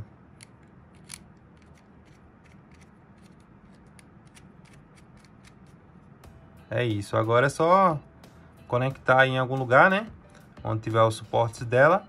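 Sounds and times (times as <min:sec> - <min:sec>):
plastic thumbscrew clicking: 0:00.4 - 0:05.7.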